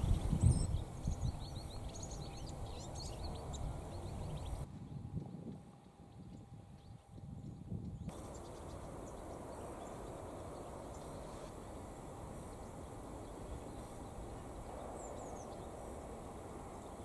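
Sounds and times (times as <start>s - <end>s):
rushing outdoor noise: 0.0s - 4.7s, 8.1s - 17.0s
faint high bird chirps: 0.0s - 5.0s.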